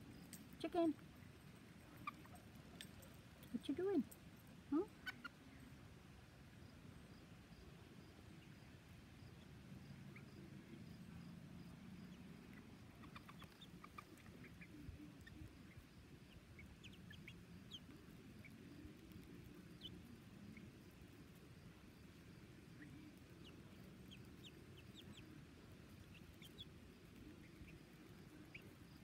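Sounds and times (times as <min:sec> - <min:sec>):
low steady background noise: 0:00.0 - 0:29.0
chicks peeping: 0:01.9 - 0:02.8, 0:12.0 - 0:29.0.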